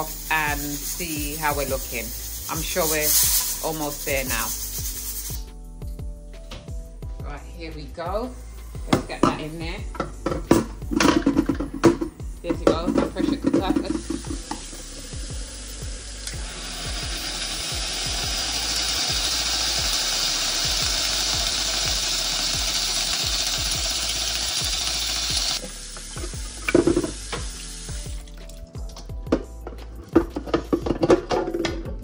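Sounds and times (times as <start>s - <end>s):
tap water running onto metal lid: 12.7s - 15.1s, 16.2s - 28.3s.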